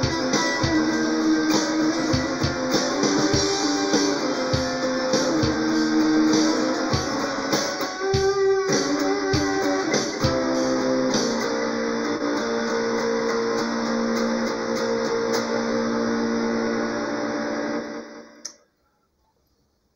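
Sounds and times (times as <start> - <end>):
electric guitar notes and chord: 0.0 - 18.4
click: 18.4 - 18.6.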